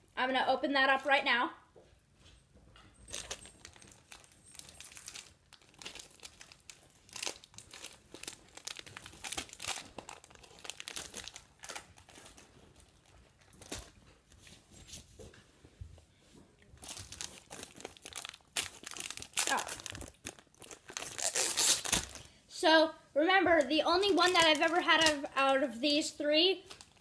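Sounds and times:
plastic wrapper crinkling: 0:03.0 - 0:14.0, 0:16.8 - 0:22.4, 0:23.6 - 0:25.8, 0:26.6 - 0:27.0.

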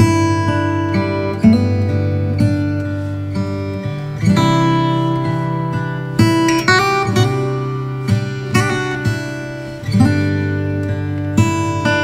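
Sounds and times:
acoustic guitar chords: 0:00.0 - 0:12.0.

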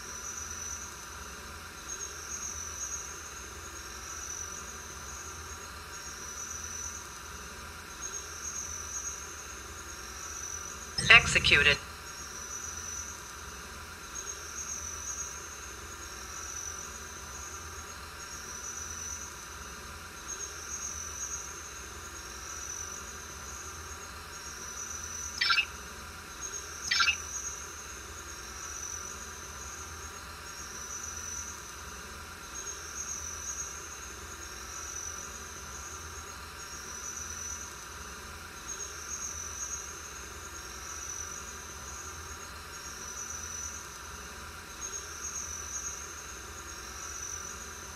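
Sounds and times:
crickets chirping: 0:20.2 - 0:37.6, 0:38.6 - 0:47.9.

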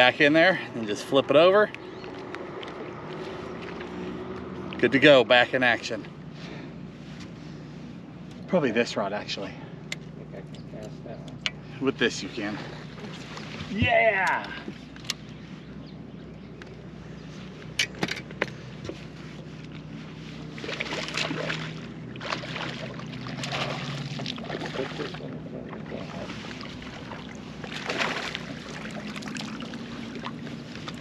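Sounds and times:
steady low hum: 0:00.0 - 0:31.0
fish splashing in water: 0:20.4 - 0:31.0.

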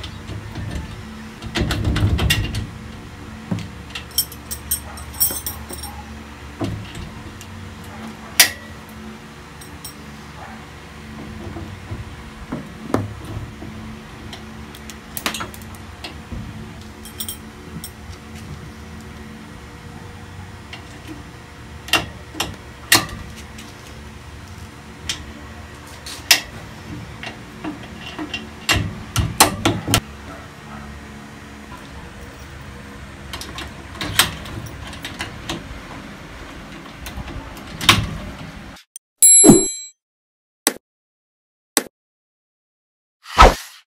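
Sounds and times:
metal latch clinks and clacks: 0:03.9 - 0:06.0, 0:17.0 - 0:18.0.

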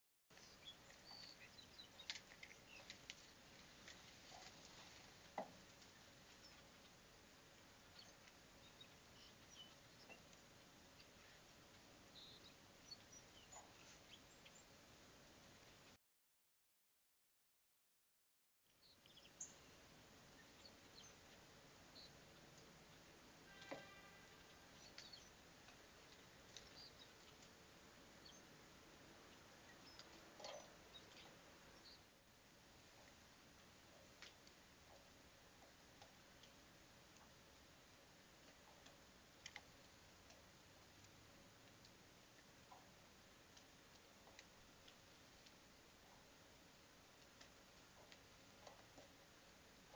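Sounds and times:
faint outdoor hiss: 0:00.3 - 0:16.0, 0:18.6 - 0:49.9
soft ticks: 0:38.4 - 0:49.3.

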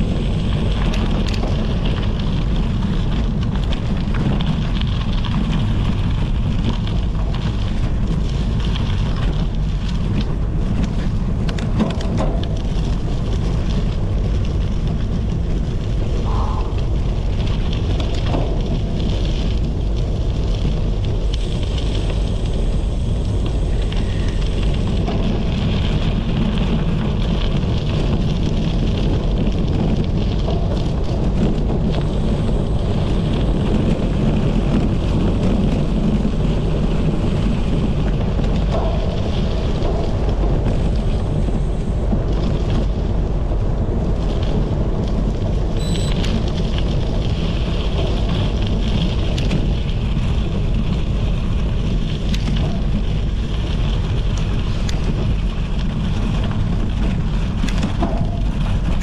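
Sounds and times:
bicycle tyres rolling on gravel: 0:00.0 - 0:59.0
wind buffeting microphone: 0:00.0 - 0:59.0.

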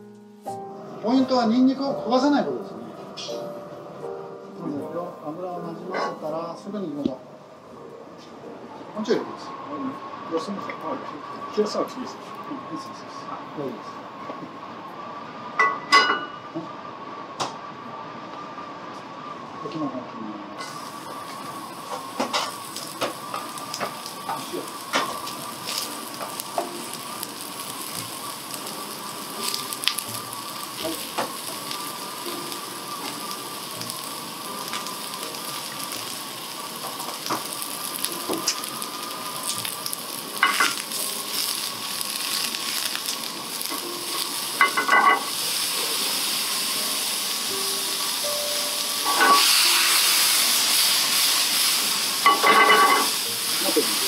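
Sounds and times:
mushrooms sizzling in oil: 0:20.6 - 0:54.0.

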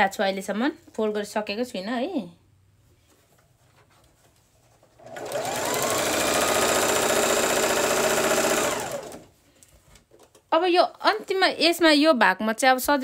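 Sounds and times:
sewing machine motor whirring: 0:05.0 - 0:09.3.

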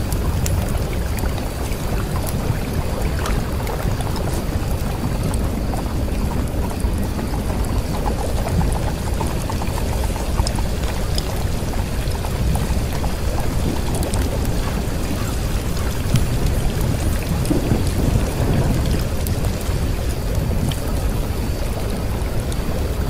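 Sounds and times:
faint crackles: 0:00.0 - 0:23.0
rain-like rushing noise: 0:00.0 - 0:23.0.

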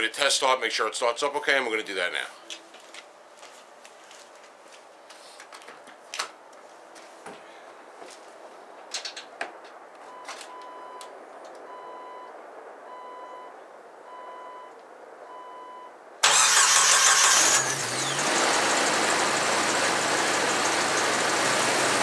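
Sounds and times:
engine idling: 0:16.2 - 0:22.0
starter cranking engine: 0:16.2 - 0:22.0.

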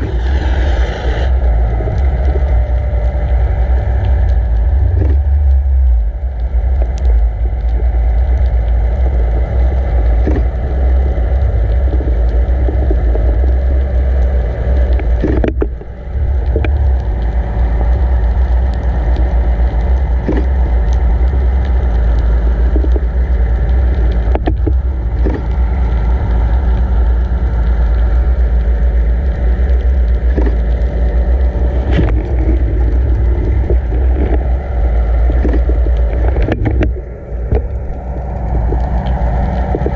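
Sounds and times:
water rushing underwater: 0:00.0 - 0:39.9.

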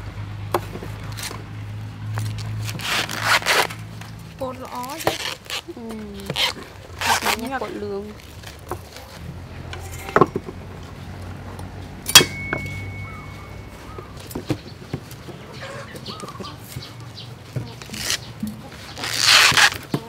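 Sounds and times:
rustle: 0:00.6 - 0:20.0
chickens clucking: 0:12.9 - 0:19.0.

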